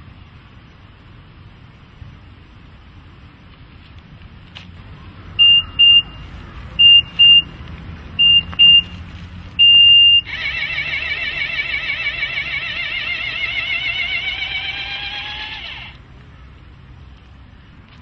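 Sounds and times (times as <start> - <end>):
short high electronic beeps: 5.4 - 6.2, 8.2 - 8.9, 9.6 - 10.4
loud warbling tone: 9.6 - 16.0.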